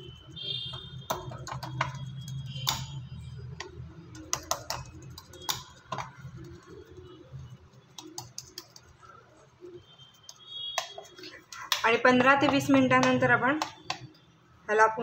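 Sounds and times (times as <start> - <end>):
spoon tapping on steel plate: 1.1 - 2.0.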